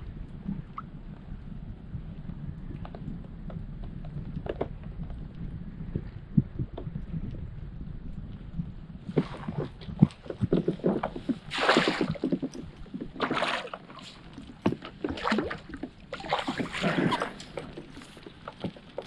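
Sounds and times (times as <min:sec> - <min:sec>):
fish splashing at the surface: 0:11.5 - 0:12.3.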